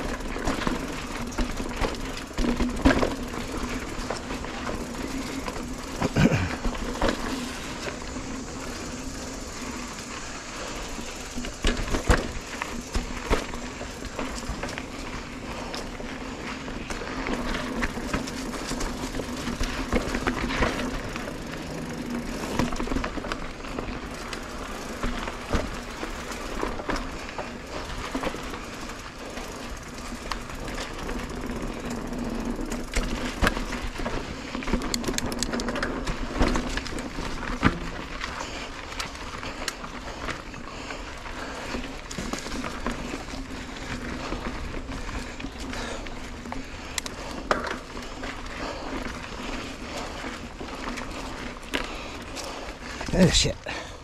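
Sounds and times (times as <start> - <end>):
bike chain and frame rattling: 0.0 - 54.0
bike tyres rumbling on dirt: 0.0 - 54.0.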